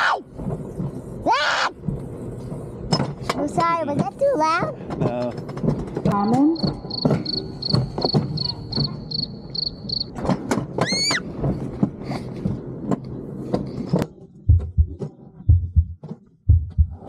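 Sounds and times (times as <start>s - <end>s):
child screaming: 0.0s - 0.3s, 1.2s - 1.8s, 10.8s - 11.2s
ride cart rattling on track: 0.0s - 14.4s.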